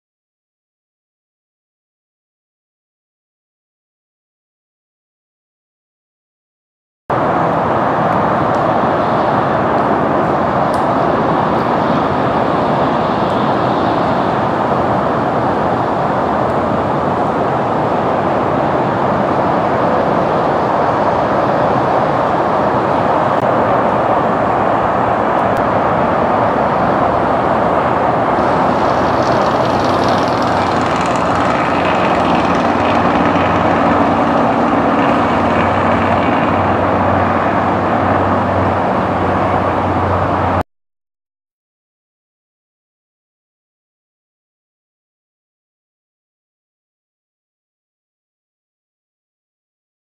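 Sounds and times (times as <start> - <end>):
jet airliner roar: 7.1 - 40.6
whining engine tone: 7.2 - 40.6
low hum: 19.1 - 40.6.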